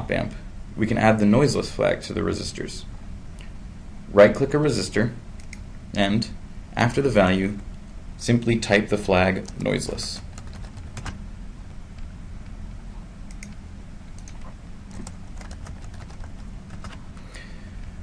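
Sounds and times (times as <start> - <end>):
low steady hum: 0.0 - 18.0
keyboard typing: 9.4 - 11.2, 13.3 - 17.1.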